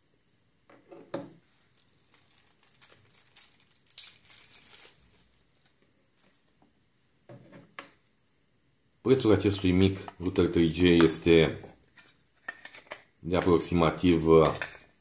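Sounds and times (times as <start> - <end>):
faint handling sounds: 0.2 - 8.4.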